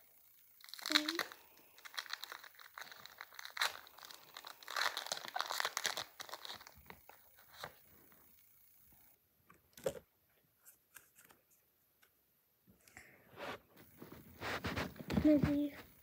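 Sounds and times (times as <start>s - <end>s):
foil wrapper tearing and crinkling: 0.6s - 7.7s.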